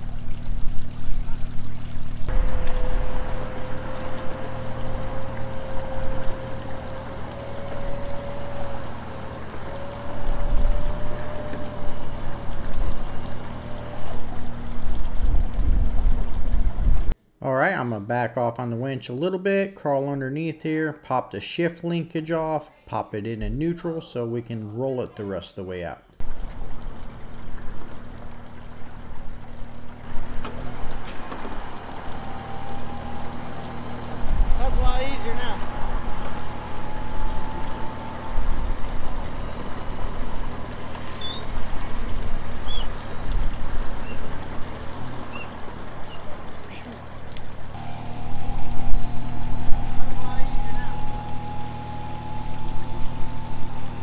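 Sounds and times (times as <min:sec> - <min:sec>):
water and wet sand splashing: 0:00.0 - 0:17.1, 0:26.2 - 0:54.0
engine humming low: 0:00.0 - 0:17.2, 0:23.4 - 0:23.8, 0:26.2 - 0:54.0
electric winch whining: 0:02.3 - 0:17.2, 0:26.2 - 0:54.0.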